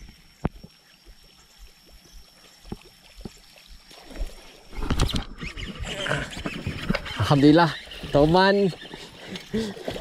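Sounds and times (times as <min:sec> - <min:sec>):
fish thrashing and splashing: 0:03.8 - 0:10.0
rod and reel handling noise: 0:04.7 - 0:09.6.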